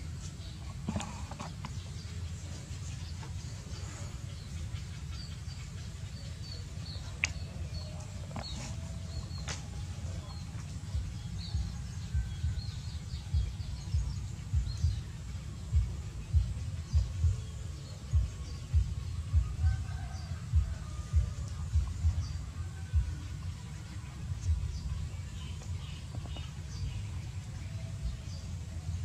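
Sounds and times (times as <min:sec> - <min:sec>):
faint bird chirps: 0:00.0 - 0:29.0
low rumble: 0:00.0 - 0:29.0
strong low thumps: 0:08.3 - 0:15.1, 0:15.7 - 0:19.9, 0:20.5 - 0:23.2, 0:24.4 - 0:25.2.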